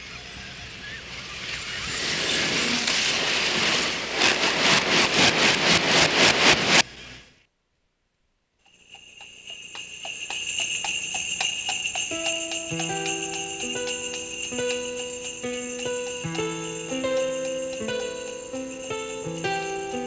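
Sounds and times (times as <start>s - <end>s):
sleigh bells shaking: 8.7s - 20.0s
melody of held notes: 12.1s - 20.0s.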